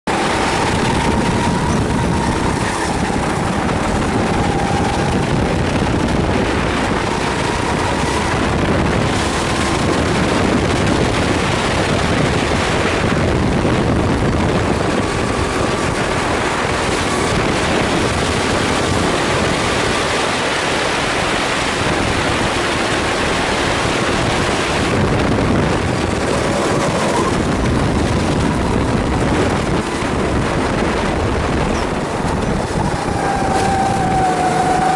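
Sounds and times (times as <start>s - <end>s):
kart engine running hard: 0.0s - 34.9s
wind and road noise: 0.0s - 34.9s.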